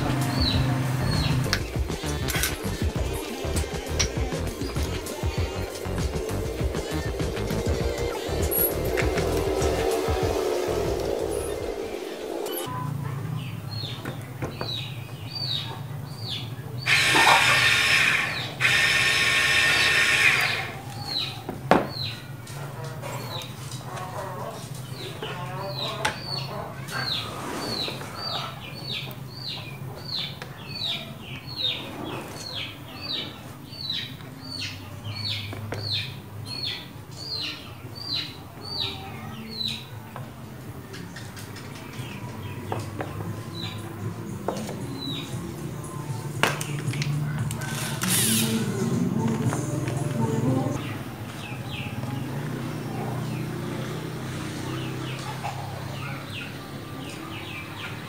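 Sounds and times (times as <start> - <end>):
electric motor whine: 0.0 - 12.7, 16.9 - 20.8
steady low hum: 0.0 - 12.8.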